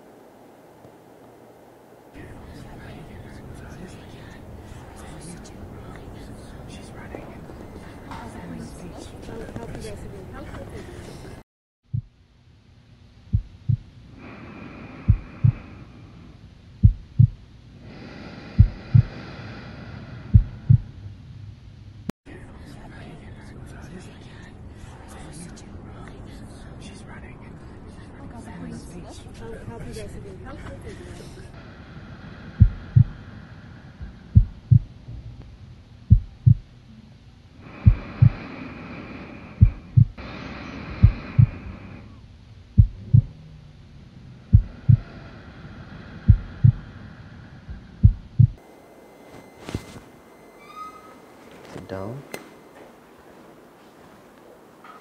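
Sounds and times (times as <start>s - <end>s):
faint high hum: 0.0s - 11.4s, 12.0s - 55.0s
heartbeat double thumps: 11.9s - 12.2s, 13.3s - 13.9s, 15.0s - 15.7s, 16.8s - 17.4s, 18.6s - 19.2s, 20.3s - 21.0s, 32.6s - 33.3s, 34.0s - 35.4s, 36.1s - 36.7s, 37.8s - 38.4s, 39.6s - 40.2s, 40.9s - 41.7s, 42.7s - 43.4s, 44.5s - 45.2s, 46.3s - 46.9s, 47.7s - 48.6s
faint hiss: 30.9s - 36.1s, 36.7s - 42.8s.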